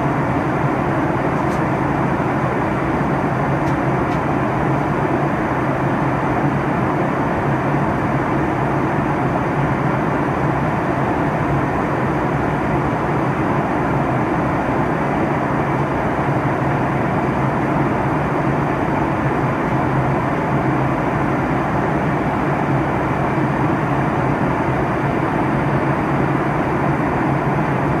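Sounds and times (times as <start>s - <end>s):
jet airliner cabin noise: 0.0s - 28.0s.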